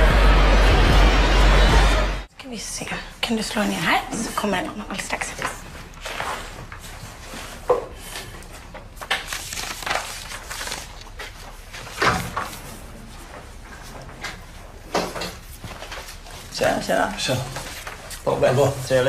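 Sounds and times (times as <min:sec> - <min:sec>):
paper rustling: 0:08.2 - 0:12.7, 0:15.4 - 0:18.4.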